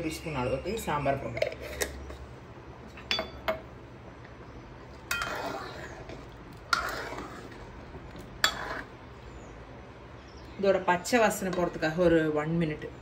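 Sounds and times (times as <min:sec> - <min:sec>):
ladle stirring liquid: 0:04.2 - 0:09.4.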